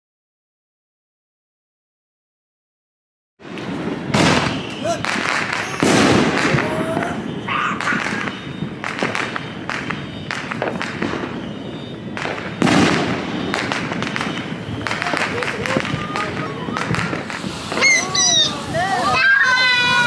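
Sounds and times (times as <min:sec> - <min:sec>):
fireworks crackling and popping: 0:03.4 - 0:20.0.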